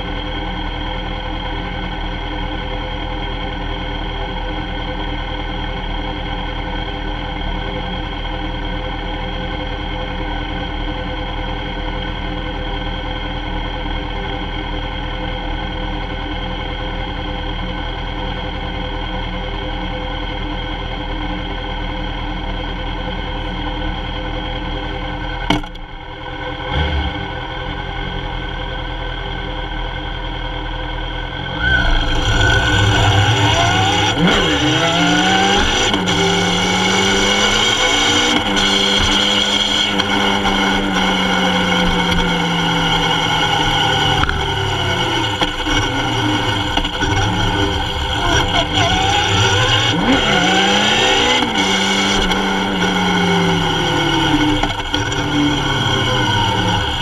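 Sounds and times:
motorcycle engine accelerating: 30.9s - 57.0s.

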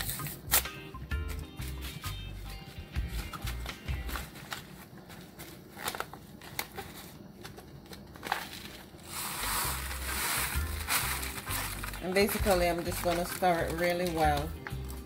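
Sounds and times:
foil packet crinkling: 3.0s - 15.0s.

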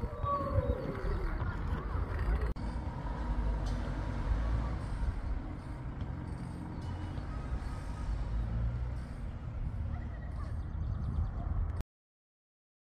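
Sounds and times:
low traffic rumble: 0.0s - 11.8s.

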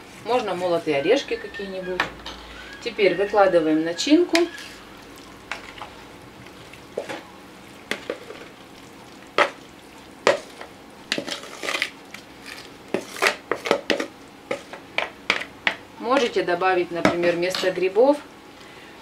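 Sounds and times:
spatula scraping plastic bowl: 0.2s - 4.8s, 11.1s - 14.7s.

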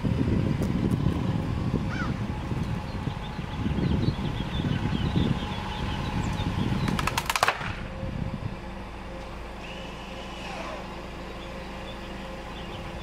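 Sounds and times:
low rumble: 0.0s - 10.3s
wooden board cracking: 7.0s - 7.8s.

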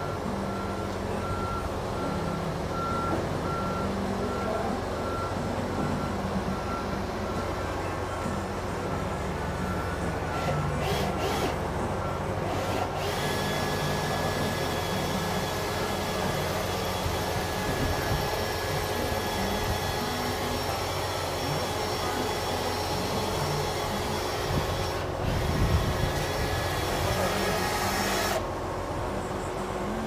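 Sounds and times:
cordless drill whining: 10.4s - 11.6s, 12.4s - 28.4s.

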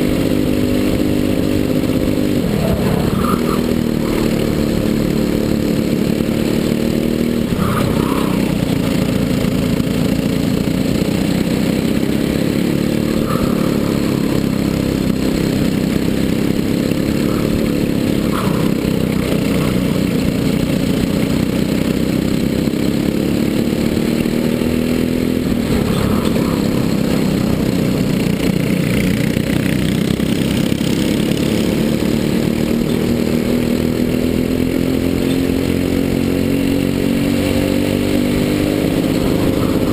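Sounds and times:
kart engine at racing revs: 0.0s - 39.9s
other kart engines: 0.0s - 39.9s.

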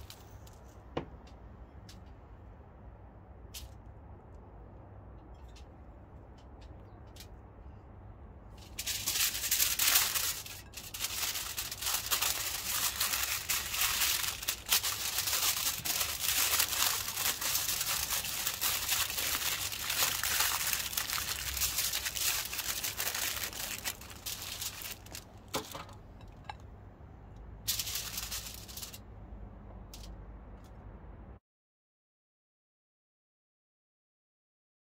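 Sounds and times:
aluminium foil crinkling: 8.5s - 26.6s, 27.7s - 29.0s.

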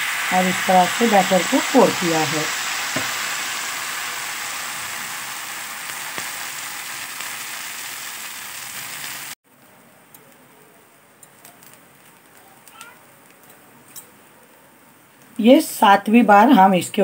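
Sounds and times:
batter sizzling on a hot pan: 0.0s - 9.4s, 11.2s - 14.0s.

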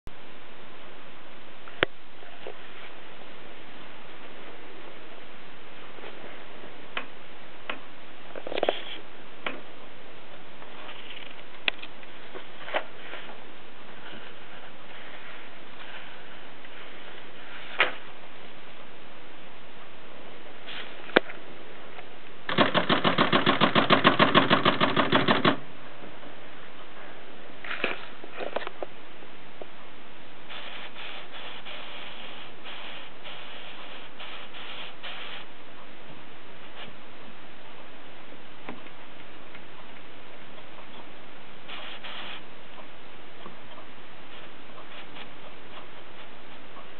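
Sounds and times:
steady hiss: 0.1s - 46.9s
typewriter clicks: 22.5s - 25.6s.

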